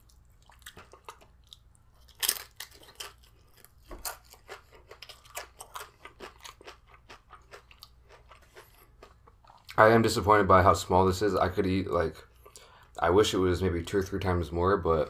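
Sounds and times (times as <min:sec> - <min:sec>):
crunching chip: 0:00.4 - 0:09.2.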